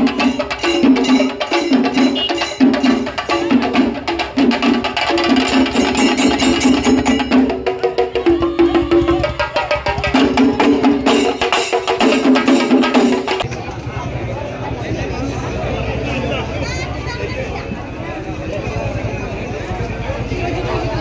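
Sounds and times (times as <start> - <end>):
fast drum strokes: 0.0 - 13.5.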